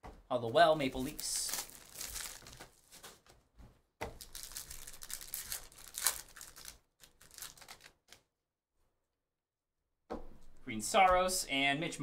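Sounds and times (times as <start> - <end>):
cards being handled: 0.8 - 3.4, 4.0 - 8.2
card pack wrapper crinkling and tearing: 0.9 - 3.2, 4.1 - 8.2.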